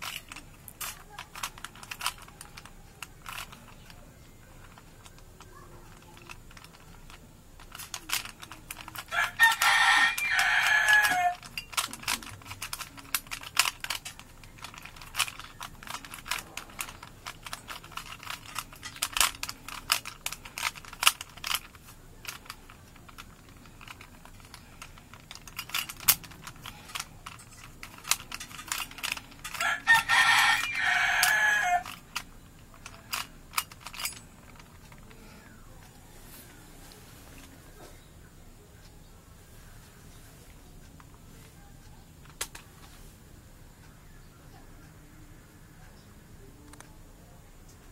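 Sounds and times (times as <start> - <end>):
puzzle cube clicking: 0.0 - 35.2, 42.2 - 42.7.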